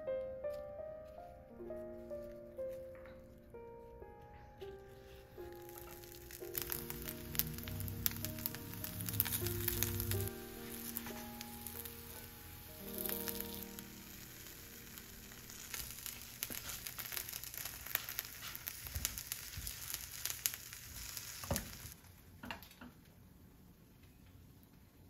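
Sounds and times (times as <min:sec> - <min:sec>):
food sizzling in a frying pan: 0:05.5 - 0:22.0.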